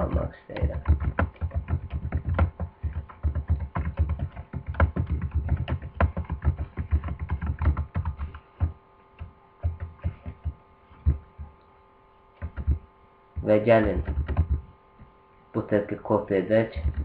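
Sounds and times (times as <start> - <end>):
computer keyboard typing: 0.0 - 11.5, 12.4 - 12.8, 13.4 - 14.7, 16.8 - 17.0.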